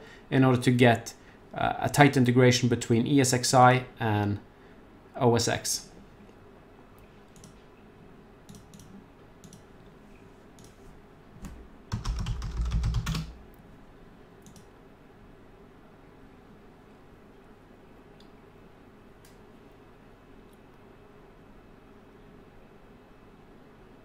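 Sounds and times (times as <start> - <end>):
computer mouse clicks: 7.0 - 7.6, 8.5 - 9.7, 10.6 - 10.8, 14.4 - 14.7
rapid keyboard clatter: 11.9 - 13.4.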